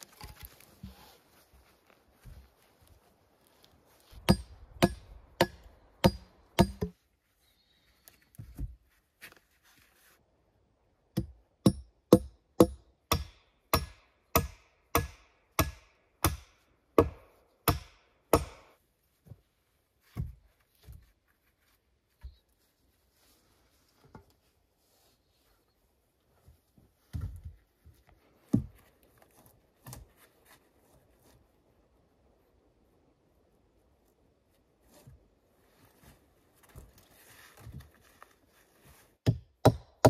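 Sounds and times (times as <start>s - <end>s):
tool striking wood: 4.2s - 7.0s, 11.2s - 18.8s, 39.2s - 40.0s.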